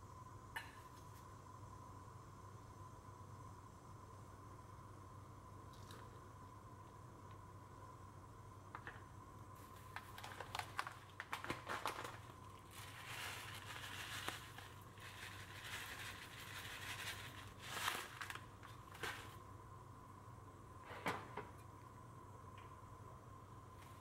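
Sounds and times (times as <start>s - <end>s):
seeds pattering into metal pan: 8.7s - 19.4s.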